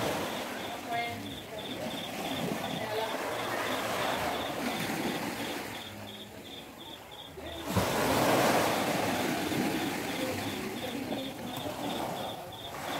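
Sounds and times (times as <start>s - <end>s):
small waves washing onto sand: 0.0s - 12.9s
wave breaking: 7.6s - 12.9s.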